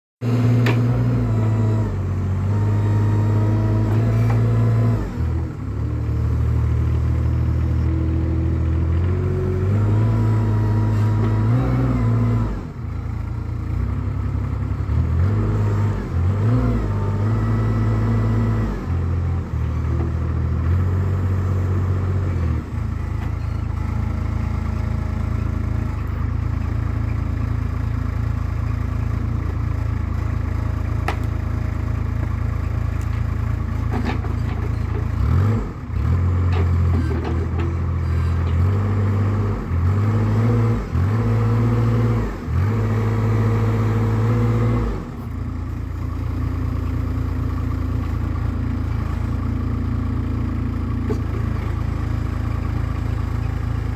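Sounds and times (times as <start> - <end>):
loader engine revving under load: 0.2 - 53.9.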